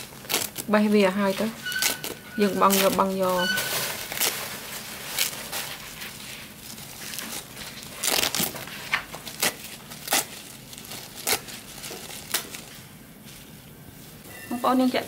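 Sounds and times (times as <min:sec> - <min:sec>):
crinkling and crackling: 0:00.0 - 0:13.5.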